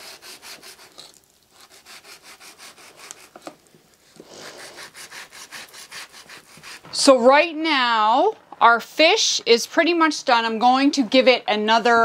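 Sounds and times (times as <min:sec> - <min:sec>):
knife sawing on cutting board: 0:00.0 - 0:03.4, 0:04.3 - 0:07.0.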